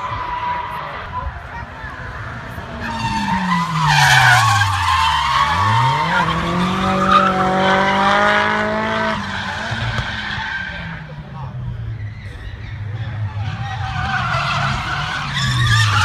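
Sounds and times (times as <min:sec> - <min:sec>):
car engine revving: 0:00.0 - 0:16.0
tyres squealing: 0:01.9 - 0:08.1, 0:11.8 - 0:16.0.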